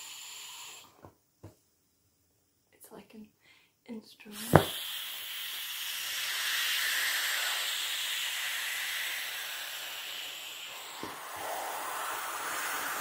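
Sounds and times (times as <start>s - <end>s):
air hissing out of valve: 0.0s - 1.0s, 4.3s - 13.0s.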